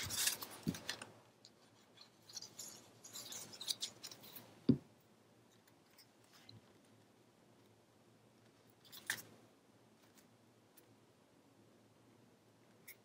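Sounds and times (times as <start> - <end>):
paper rustling and scraping: 0.0 - 4.5.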